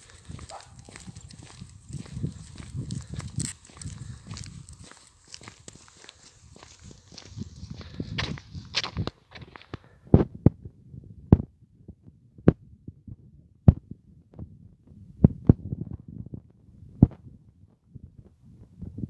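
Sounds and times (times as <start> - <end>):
footsteps on asphalt: 0.0 - 9.9.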